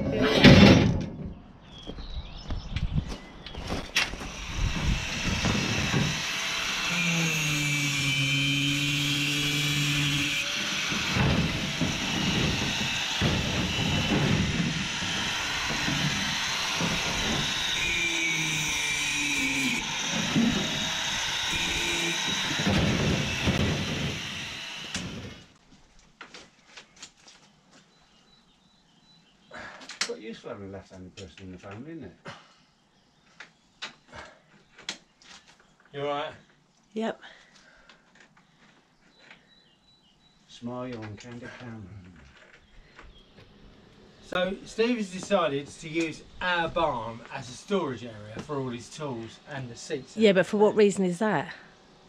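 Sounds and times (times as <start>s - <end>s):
angle grinder cutting metal pipe: 4.1s - 25.5s.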